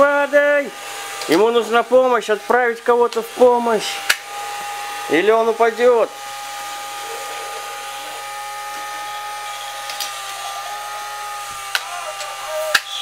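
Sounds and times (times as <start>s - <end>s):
small electric motor whining: 0.0s - 13.0s.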